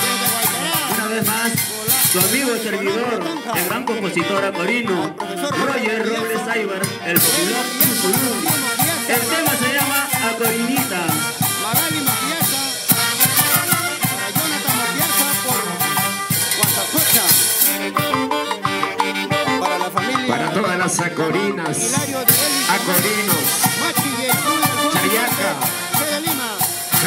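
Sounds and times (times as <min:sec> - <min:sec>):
congas and timbales: 0:00.0 - 0:27.0
trumpets and saxophones: 0:00.0 - 0:27.0.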